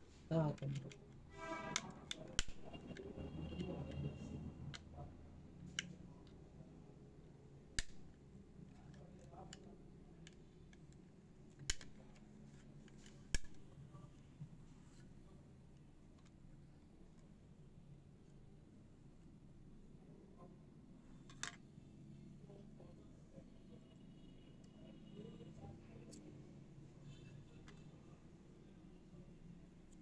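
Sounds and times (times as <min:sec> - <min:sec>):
plastic clips snapping: 0:07.8 - 0:08.1, 0:11.6 - 0:12.0.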